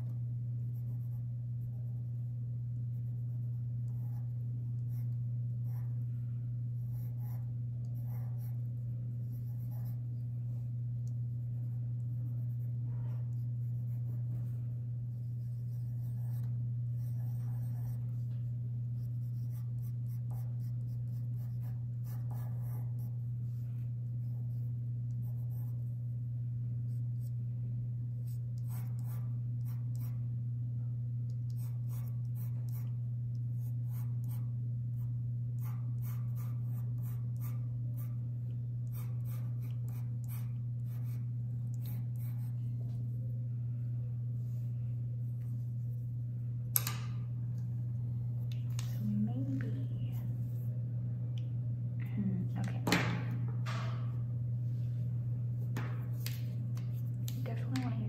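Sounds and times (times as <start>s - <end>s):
steady low hum: 0.0s - 58.0s
pencil scratching on paper: 0.6s - 6.1s, 6.8s - 10.4s, 11.6s - 18.3s, 18.9s - 23.3s, 24.2s - 25.9s, 28.2s - 30.2s, 31.5s - 33.0s, 33.6s - 38.2s, 38.8s - 42.6s.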